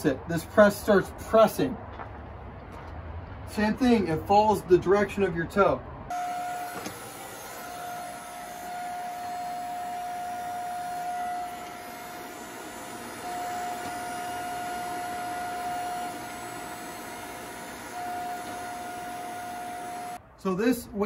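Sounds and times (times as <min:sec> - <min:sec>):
higher hydraulic tone: 0:06.1 - 0:20.2
hydraulic pump motor whine: 0:06.1 - 0:20.2.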